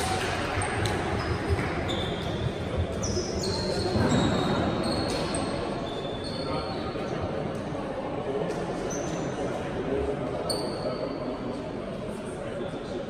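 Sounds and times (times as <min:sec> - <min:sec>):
shoes squeaking on hardwood floor: 0:01.2 - 0:06.5.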